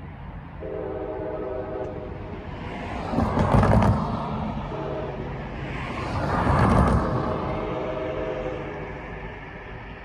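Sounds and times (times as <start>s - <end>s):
locomotive air horn: 0.6s - 2.2s, 4.6s - 5.3s, 7.2s - 8.9s.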